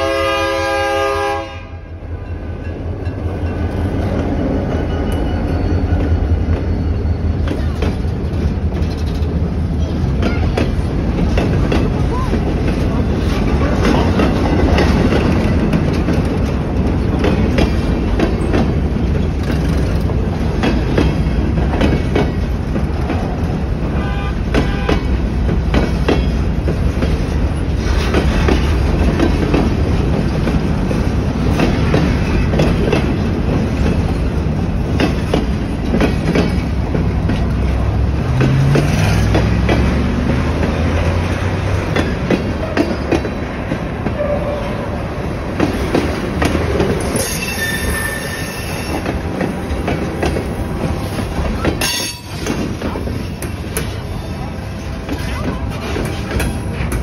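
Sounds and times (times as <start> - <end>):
freight train rumbling past: 0.0 - 57.0
wheels clattering over rail joints: 2.2 - 57.0
wheel squeals: 47.0 - 49.1.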